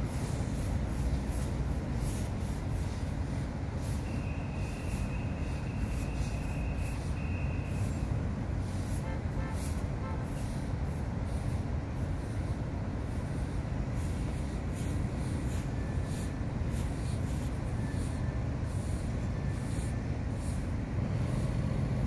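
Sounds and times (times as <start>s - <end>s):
low rumble of city traffic: 0.0s - 22.0s
faint high whine: 0.1s - 9.5s.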